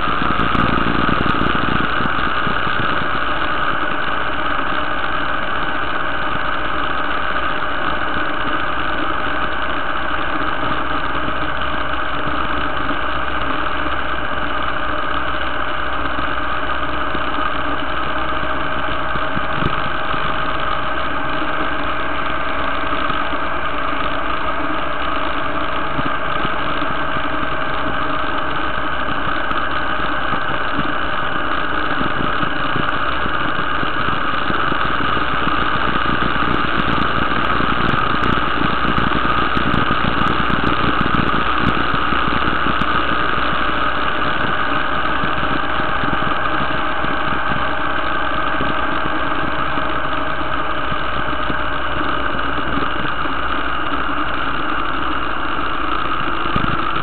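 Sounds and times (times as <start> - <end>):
motorcycle engine cruising: 31.5 - 53.2.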